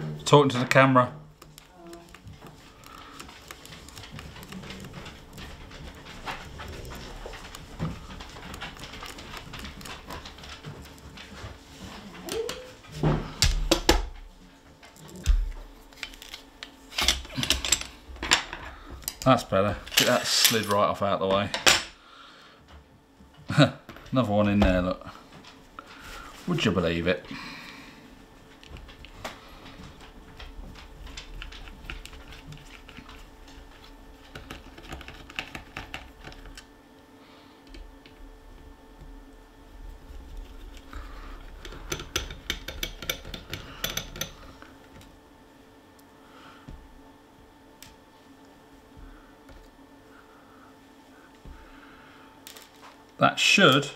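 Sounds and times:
metal parts clicking and clattering: 19.8s - 20.8s
screwdriver clicks and taps on metal: 41.6s - 44.4s.

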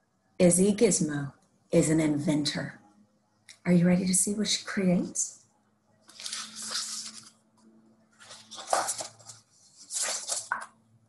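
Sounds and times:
book pages rustling: 6.1s - 7.4s, 8.2s - 10.8s.

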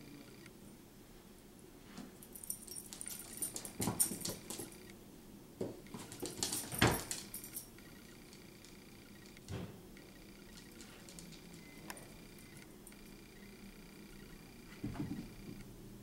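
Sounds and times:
collar jingling: 2.2s - 4.9s, 5.9s - 7.8s, 10.4s - 11.8s.

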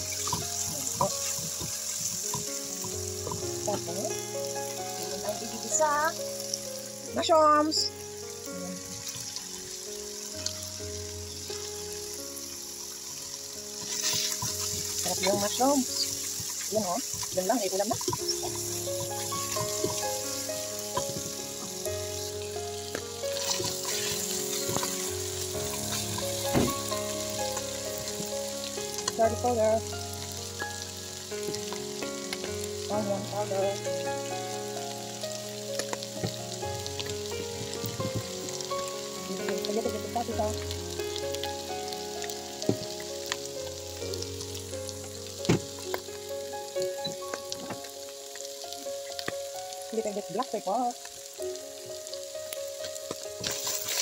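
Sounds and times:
food sizzling in a pot: 0.0s - 54.0s
soft background music: 0.0s - 54.0s
spatula scraping and knocking pot: 13.8s - 15.6s.

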